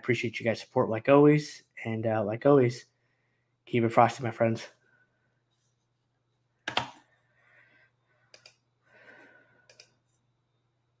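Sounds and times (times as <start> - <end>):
soft breathing: 7.1 - 10.3.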